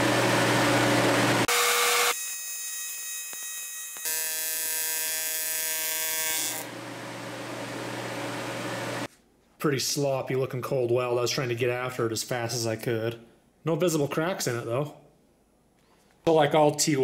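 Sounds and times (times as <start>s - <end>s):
welding arc buzzing: 0.0s - 6.8s.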